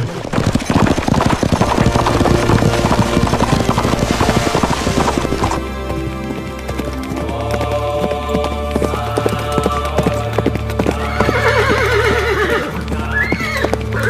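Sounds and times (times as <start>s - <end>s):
horse hooves clip-clopping: 0.0s - 14.0s
background music: 1.2s - 14.0s.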